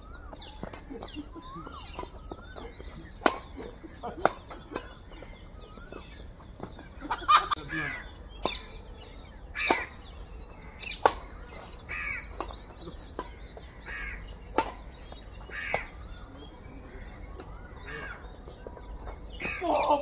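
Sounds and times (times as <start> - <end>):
rackets hitting shuttlecock: 0.2 - 7.2, 8.3 - 8.9, 9.6 - 10.2, 10.8 - 11.5, 12.2 - 16.2, 17.2 - 17.7.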